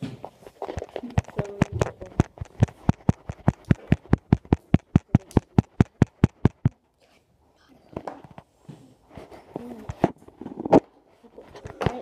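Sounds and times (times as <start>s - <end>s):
rapid sharp taps: 0.2s - 6.8s.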